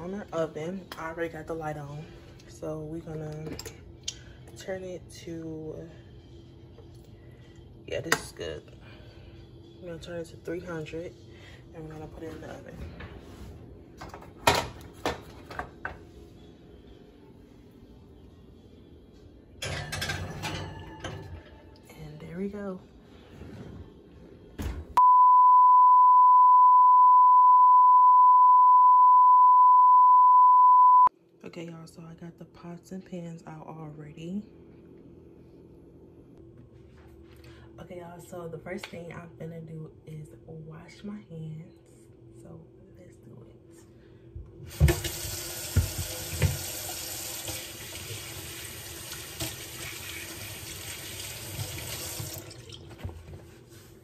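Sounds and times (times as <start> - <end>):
steady test tone beep: 25.0 - 31.1
faucet running: 44.7 - 52.9.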